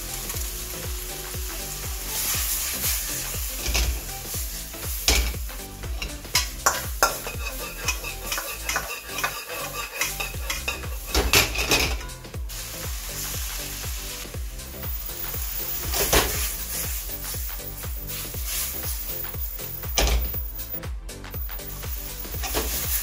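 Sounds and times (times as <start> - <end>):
food sizzling in a wok: 0.0 - 23.0
wok being tossed: 0.1 - 20.7, 21.8 - 23.0
metal spoon scraping a wok: 6.0 - 12.2, 22.4 - 23.0.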